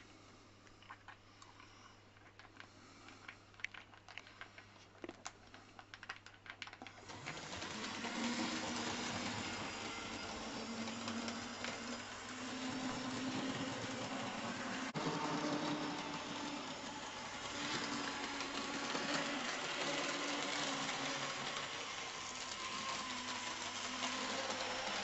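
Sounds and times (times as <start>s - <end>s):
model train wheels clicking: 5.8s - 25.0s
model train whirring: 7.0s - 25.0s.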